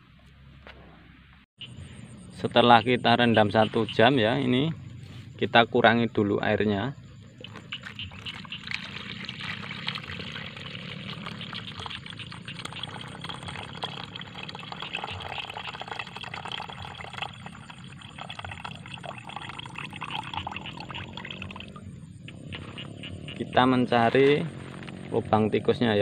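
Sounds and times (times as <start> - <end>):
liquid pouring into metal bucket: 7.5 - 21.8.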